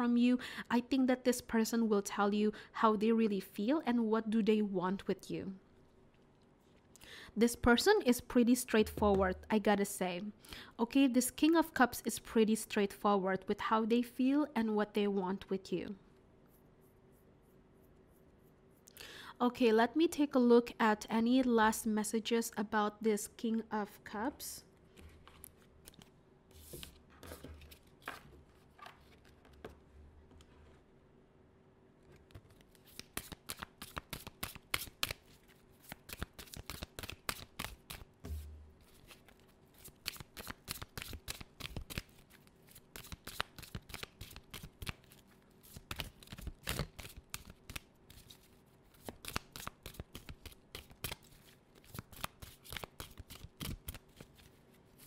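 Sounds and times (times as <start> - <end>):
cards being shuffled: 24.9 - 29.7, 32.1 - 55.0.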